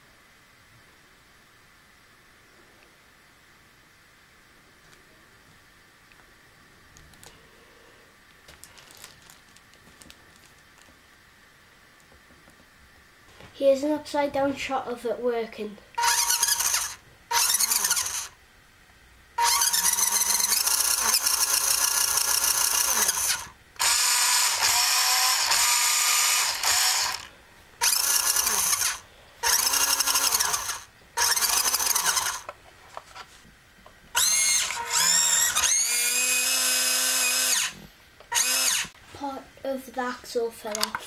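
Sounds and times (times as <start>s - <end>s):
toy truck electric motor whining: 16.0s - 18.4s, 19.4s - 32.5s, 34.2s - 39.0s.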